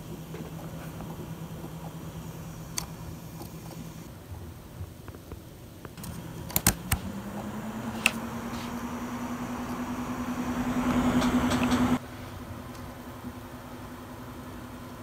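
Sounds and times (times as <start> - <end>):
fans humming with air rush: 0.0 - 15.0
switch clicks: 6.0 - 7.2.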